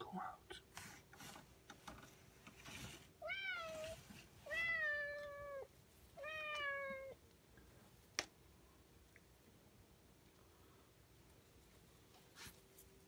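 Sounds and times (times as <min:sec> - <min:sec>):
cat meowing: 0:03.2 - 0:07.2.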